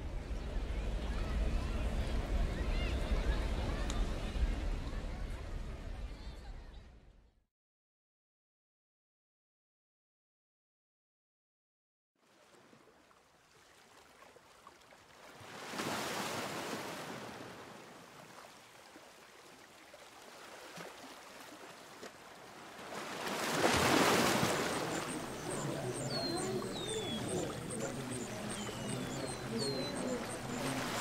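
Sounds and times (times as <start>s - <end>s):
waves washing in: 13.5s - 31.0s
birds chirping: 23.2s - 31.0s.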